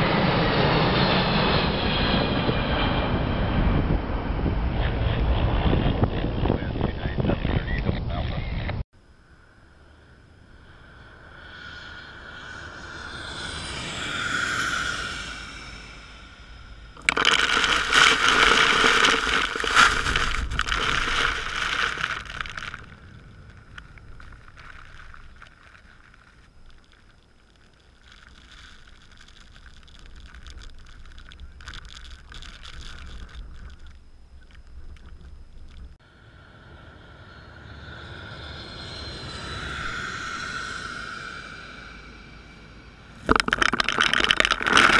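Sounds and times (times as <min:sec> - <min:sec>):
airplane flying overhead: 0:00.0 - 0:20.3, 0:33.7 - 0:43.3.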